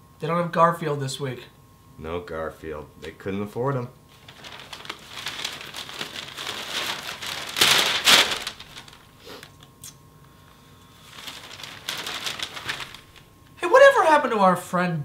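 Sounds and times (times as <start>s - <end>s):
newspaper pages rustling: 4.1s - 9.6s, 10.9s - 13.5s.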